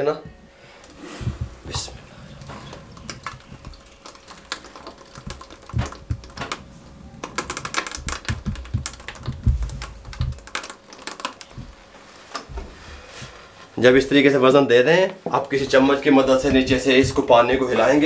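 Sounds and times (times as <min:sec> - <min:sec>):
dull knocks: 0:05.2 - 0:10.5.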